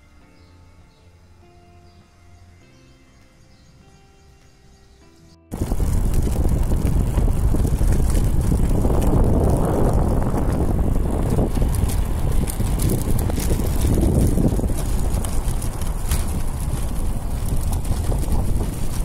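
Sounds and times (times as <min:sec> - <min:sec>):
tyres rumbling on asphalt: 0:05.5 - 0:19.0
wind buffeting microphone: 0:05.5 - 0:19.0.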